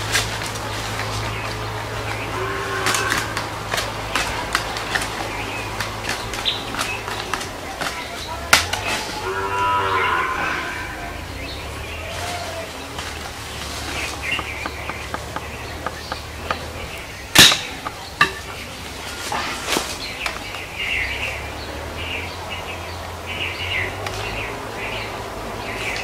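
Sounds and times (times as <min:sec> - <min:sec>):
birds chirping: 0:00.0 - 0:26.0
sharp loud crack: 0:17.3 - 0:17.9.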